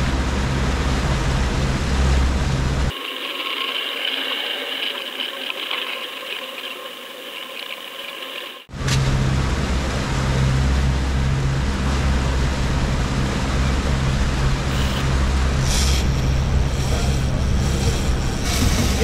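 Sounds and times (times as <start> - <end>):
boat engine humming: 0.0 - 19.0
rushing water: 0.0 - 19.0.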